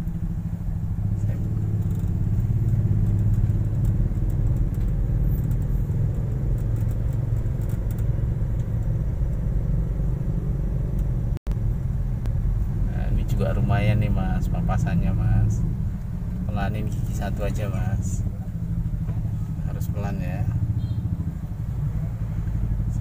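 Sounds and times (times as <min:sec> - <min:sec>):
car engine and tyres rumbling: 0:00.0 - 0:23.0.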